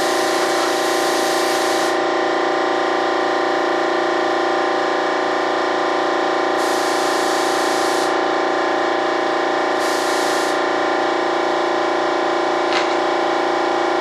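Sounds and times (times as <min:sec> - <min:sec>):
paint spray gun hissing: 0:00.0 - 0:02.0, 0:06.6 - 0:08.2, 0:09.8 - 0:10.7
steady machine drone: 0:00.0 - 0:14.0.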